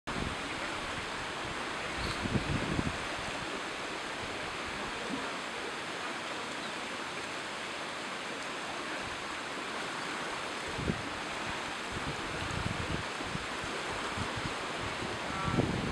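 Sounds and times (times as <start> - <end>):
wind buffeting microphone: 0.1 - 3.6, 10.6 - 15.9
waves washing on rocky shore: 0.1 - 15.9.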